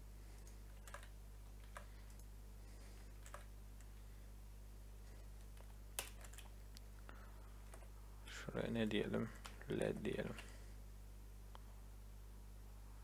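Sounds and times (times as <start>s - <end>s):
faint low electrical hum: 0.0s - 13.0s
mouse and keyboard clicks: 0.4s - 2.3s, 3.2s - 3.9s, 5.4s - 6.5s.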